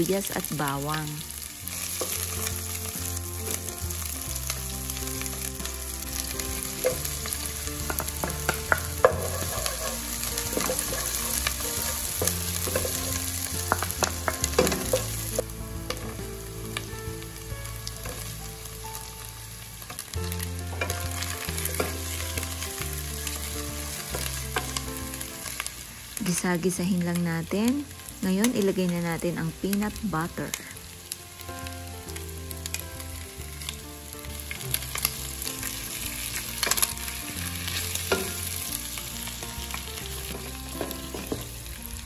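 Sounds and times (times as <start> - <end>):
onion sizzling in hot oil: 0.0 - 42.0
wooden spoon scraping a pan: 6.6 - 16.1, 20.7 - 22.6.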